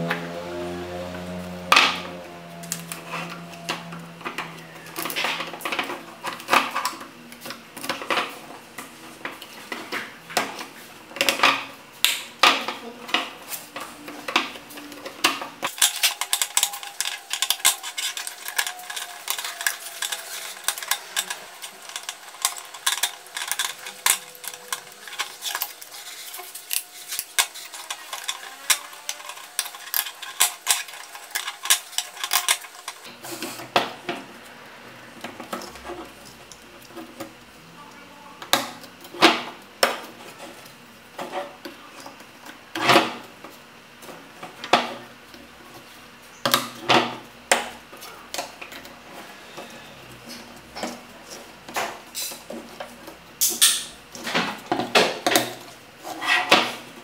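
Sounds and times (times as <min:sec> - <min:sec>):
wooden strips clattering: 0:12.4 - 0:33.9.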